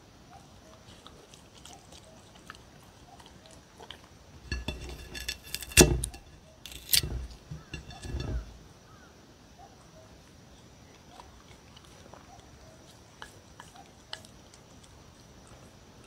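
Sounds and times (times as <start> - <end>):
dog crunching cucumber: 0.7 - 4.5, 5.3 - 7.6, 10.9 - 16.0.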